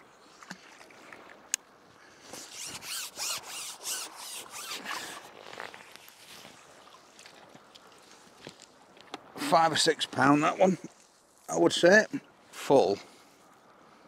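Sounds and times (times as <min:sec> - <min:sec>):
pole handle rasping through hands: 0:02.3 - 0:05.2.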